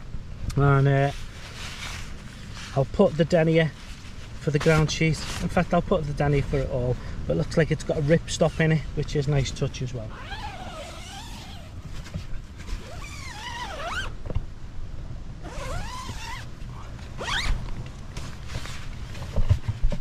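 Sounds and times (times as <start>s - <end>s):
tent zip rasping: 10.1s - 14.2s, 15.4s - 16.5s, 17.2s - 17.6s.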